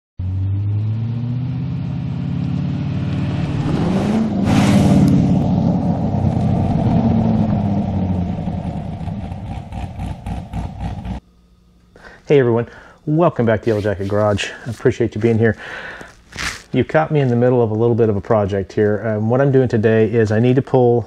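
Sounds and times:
car engine passing by: 0.2s - 11.2s
tyre noise: 13.6s - 16.9s.

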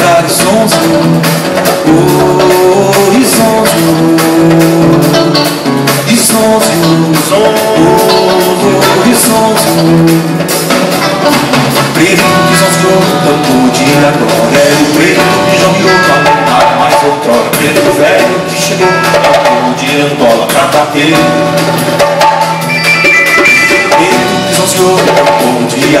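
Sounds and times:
men singing: 0.0s - 10.6s, 11.9s - 21.6s, 23.9s - 26.0s
electric bass: 0.0s - 26.0s
hand percussion: 0.0s - 26.0s
strummed acoustic guitar: 0.0s - 26.0s.

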